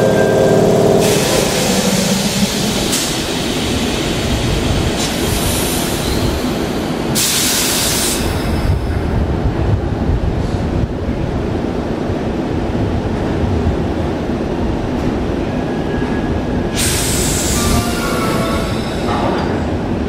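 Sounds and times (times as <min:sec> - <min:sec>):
train rolling away: 0:00.0 - 0:08.8, 0:15.1 - 0:20.0
low train rumble: 0:00.0 - 0:20.0
air hiss bursts: 0:16.8 - 0:19.1.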